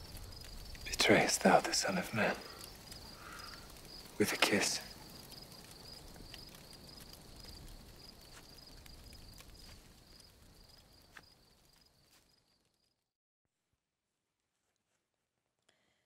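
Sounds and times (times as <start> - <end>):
faint clicks: 0.0 - 11.8
crickets chirping: 0.0 - 13.0.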